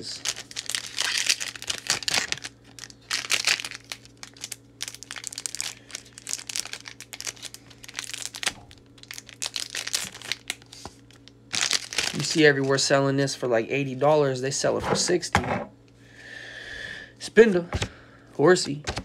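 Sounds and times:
foil wrapper crinkling: 0.0 - 12.9.

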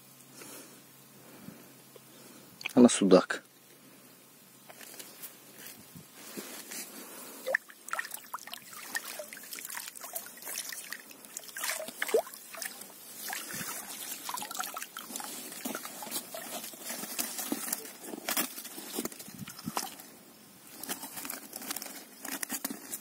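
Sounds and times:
short splashes and clicks: 7.4 - 16.4
water trickling and splashing: 7.4 - 18.0, 19.0 - 20.0.

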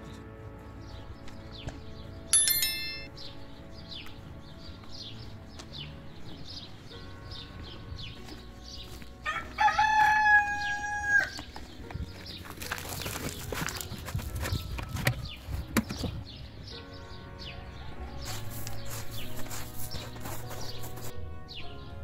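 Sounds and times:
rooster crowing: 9.3 - 11.4.

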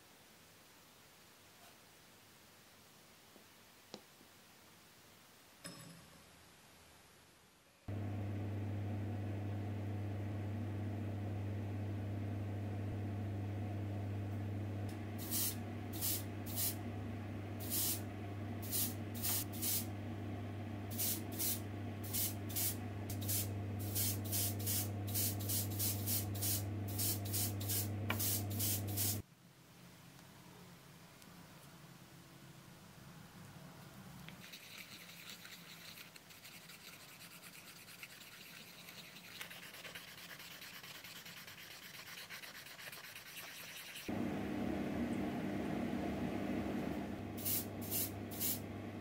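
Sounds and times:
electric motor hum: 7.9 - 29.2, 44.1 - 49.0
airbrush hissing spray bursts: 15.2 - 16.8, 17.6 - 18.0, 18.6 - 19.9, 20.9 - 29.2, 47.4 - 48.6.

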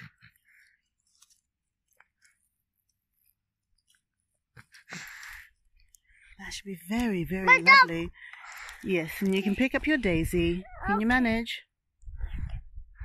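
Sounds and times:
crunchy rustle of bark: 0.0 - 6.0.

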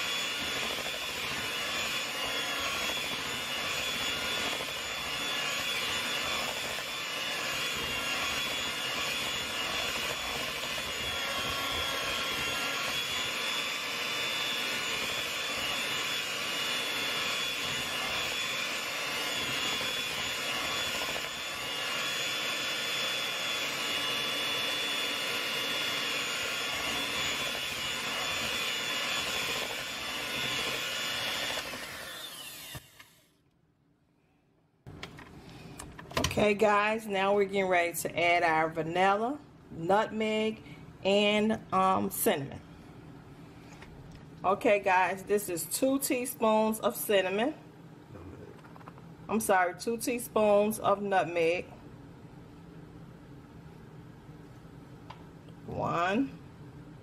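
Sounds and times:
electric hand mixer running: 0.0 - 33.2.

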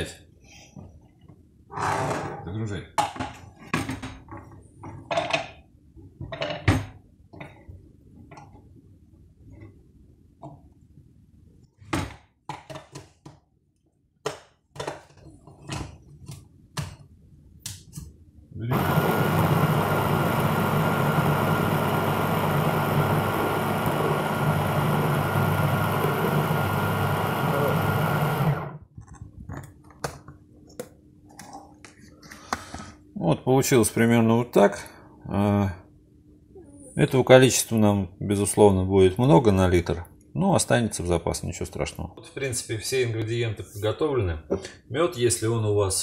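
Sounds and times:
blender grinding root: 18.7 - 28.8.

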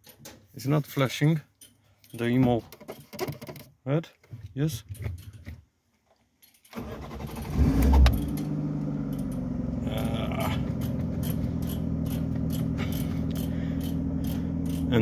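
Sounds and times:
car engine starting and idling: 6.8 - 15.0.

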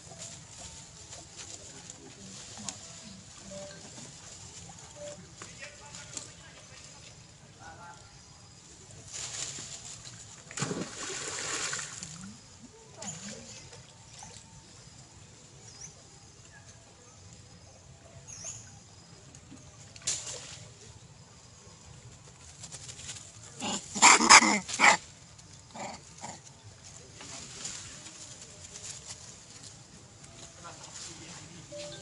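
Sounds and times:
monkey giving wavering calls: 23.6 - 25.0.

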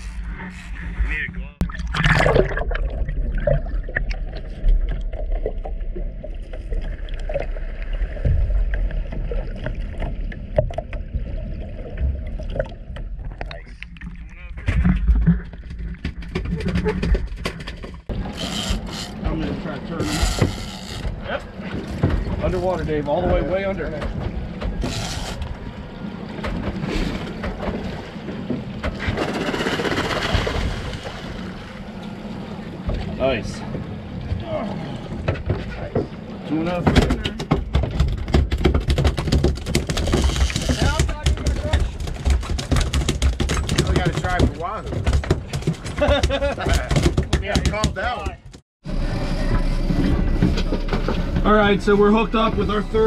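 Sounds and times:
underwater low rumble: 0.0 - 36.6, 48.8 - 53.0
water sloshing against boat: 0.0 - 53.0
small underwater clicks and knocks: 8.2 - 11.2, 36.8 - 48.6.

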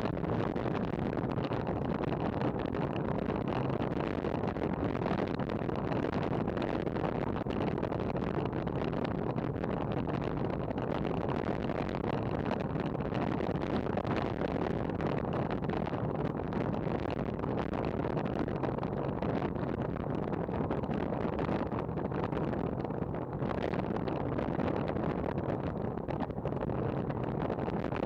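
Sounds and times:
wind rushing on microphone: 0.0 - 28.0.

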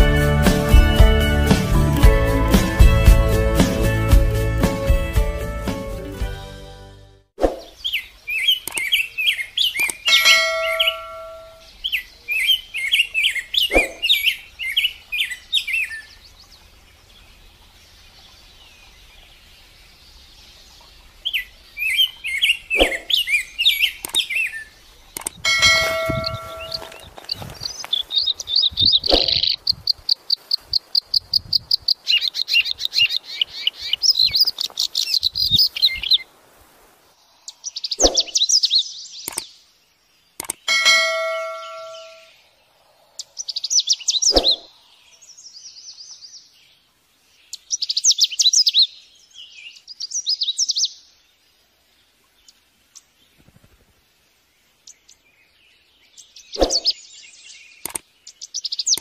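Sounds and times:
birds chirping and trilling: 7.4 - 36.3, 37.2 - 59.0
bell-like ding: 10.1 - 11.6, 25.5 - 26.9, 40.7 - 42.3.

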